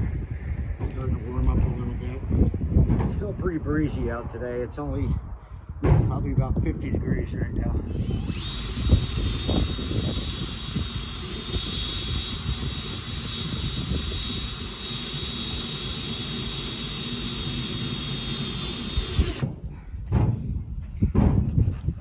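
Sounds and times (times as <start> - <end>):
wind rumble on microphone: 0.0 - 16.4, 18.7 - 22.0
cordless drill whining: 7.9 - 19.6.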